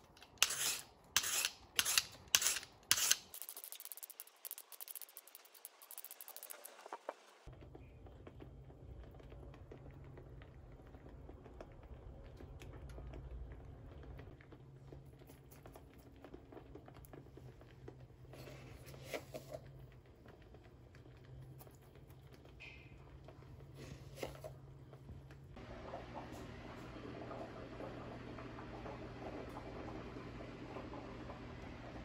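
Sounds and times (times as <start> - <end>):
small clicks and pattering: 3.3 - 18.1.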